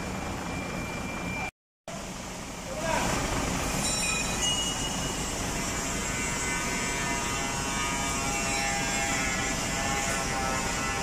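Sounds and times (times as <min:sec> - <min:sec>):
hydraulic winch buzzing whine: 0:03.2 - 0:11.0.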